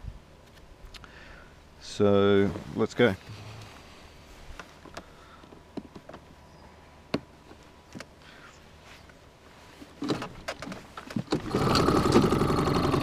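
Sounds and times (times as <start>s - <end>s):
start cord pulls: 10.0s - 13.0s
outboard motor running: 11.3s - 13.0s.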